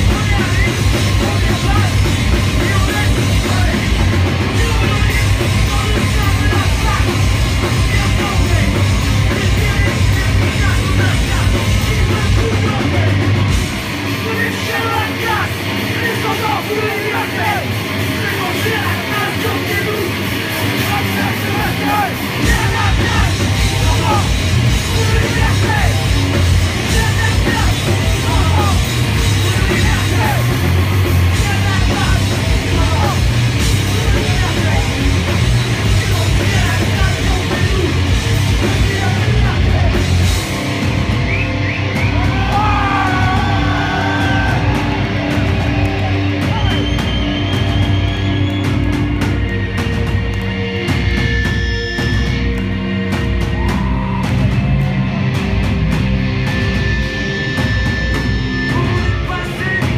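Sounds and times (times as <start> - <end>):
bass guitar: 0.0 - 59.9
distorted electric guitars: 0.0 - 59.9
pounding drums: 0.0 - 59.9.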